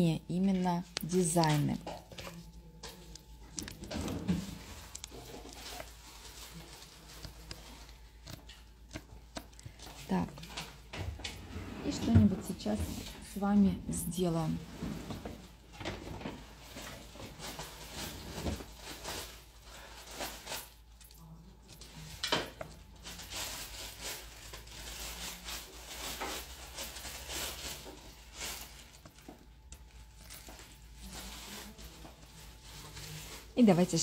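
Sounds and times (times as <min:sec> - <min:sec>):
packaging being handled: 0:00.3 - 0:10.9.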